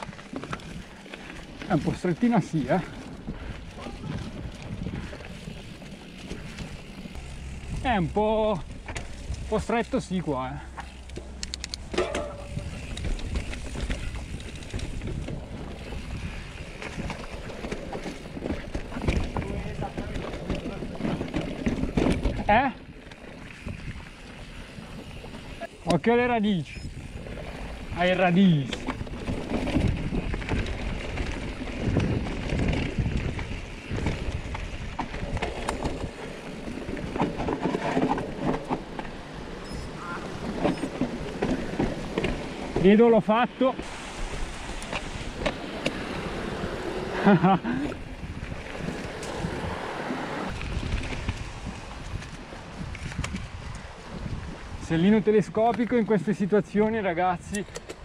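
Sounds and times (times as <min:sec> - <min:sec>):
bike knocks and rattles: 0:02.5 - 0:22.8, 0:28.4 - 0:43.0
wind rumble on microphone: 0:02.6 - 0:25.7, 0:26.6 - 0:42.8, 0:43.8 - 0:56.0.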